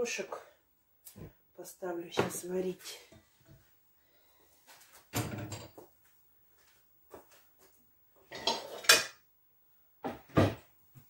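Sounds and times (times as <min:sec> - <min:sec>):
kitchenware clattering: 0:08.3 - 0:09.2.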